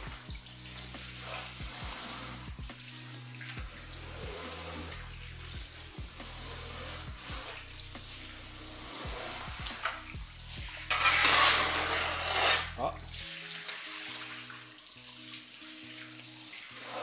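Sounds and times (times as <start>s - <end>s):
metal squeegee scraping wet rug: 0.0s - 12.9s, 16.6s - 17.0s.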